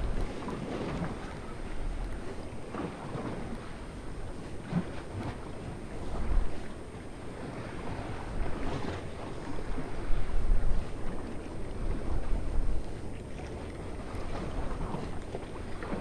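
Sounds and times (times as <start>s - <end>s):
sea water washing on shore: 0.0s - 16.0s
wind buffeting microphone: 0.0s - 16.0s.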